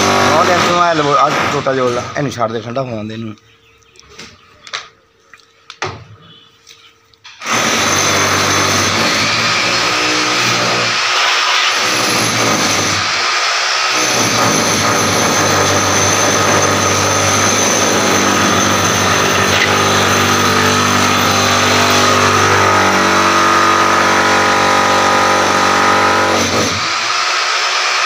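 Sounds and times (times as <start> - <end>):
motor running: 15.5 - 22.4.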